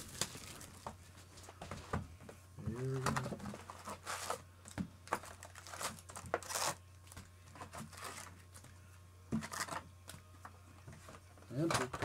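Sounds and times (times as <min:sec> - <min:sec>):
foil packs crinkling: 0:00.0 - 0:00.9, 0:05.1 - 0:06.8.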